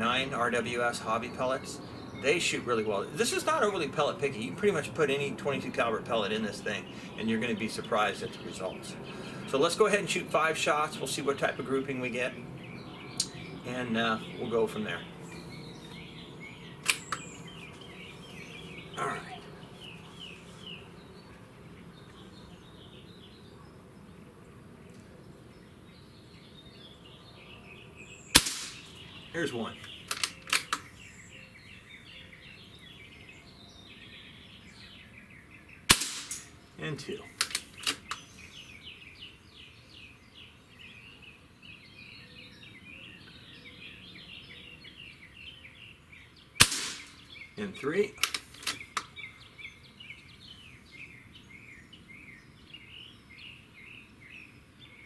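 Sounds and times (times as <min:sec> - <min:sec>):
birds chirping: 0:00.0 - 0:55.0
air rifle shot crack: 0:28.3 - 0:29.0, 0:35.9 - 0:36.6, 0:46.6 - 0:47.3.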